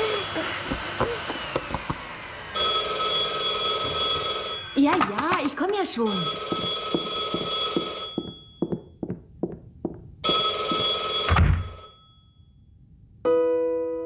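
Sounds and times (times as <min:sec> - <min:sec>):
cartoon vacuum cleaner running: 0:00.0 - 0:08.3.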